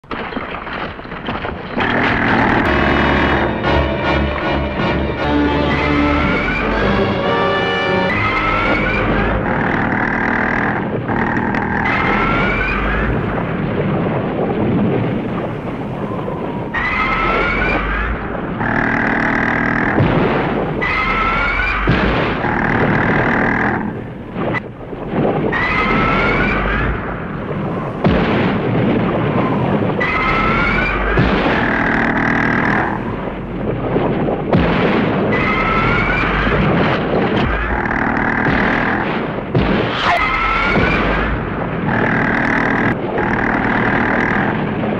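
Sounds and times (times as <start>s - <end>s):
low rumble: 1.1s - 44.9s
monster shrieking: 8.0s - 13.1s, 16.0s - 19.9s, 20.8s - 23.8s, 25.5s - 26.9s, 29.4s - 33.0s, 35.3s - 36.6s, 40.0s - 41.3s
heavy thuds: 18.2s - 20.9s, 27.4s - 30.0s, 31.1s - 35.4s, 36.5s - 44.9s.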